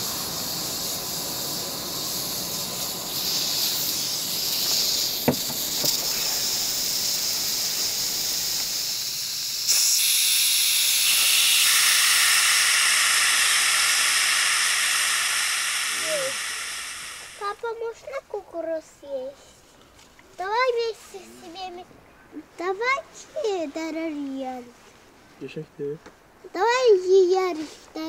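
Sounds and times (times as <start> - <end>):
steam hissing from valve: 0.0 - 17.9.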